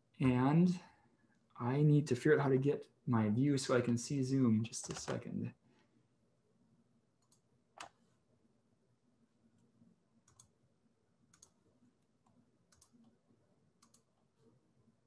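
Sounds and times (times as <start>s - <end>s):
computer mouse clicks: 7.2s - 8.0s, 9.6s - 10.6s, 11.3s - 11.6s, 12.2s - 13.2s, 13.8s - 14.1s.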